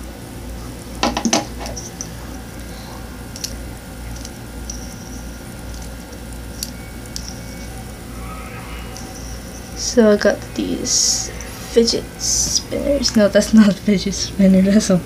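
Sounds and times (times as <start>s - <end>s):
low steady hum: 0.0s - 15.0s
fingers handling phone and spinner: 3.3s - 7.8s.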